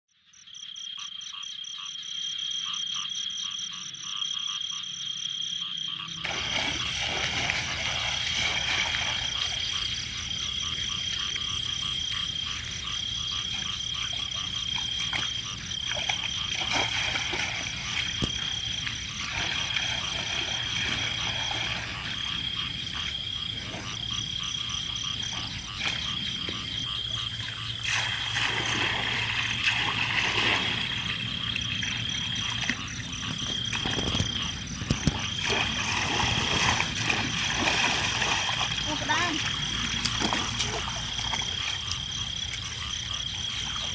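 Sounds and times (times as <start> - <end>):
frogs trilling and croaking: 0.1 - 43.9.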